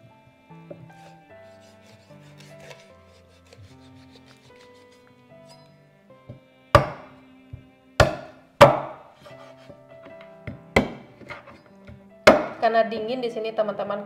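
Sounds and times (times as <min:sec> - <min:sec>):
cleaver chopping on cutting board: 0:01.4 - 0:04.1, 0:06.3 - 0:07.1, 0:08.0 - 0:09.8, 0:10.5 - 0:12.6.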